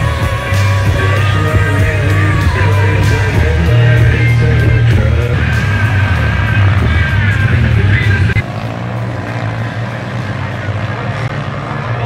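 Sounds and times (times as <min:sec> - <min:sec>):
steady drum beat: 0:00.0 - 0:06.2
person singing: 0:00.0 - 0:08.4
heavy bassline: 0:00.0 - 0:12.0
loud rock music: 0:00.0 - 0:12.0.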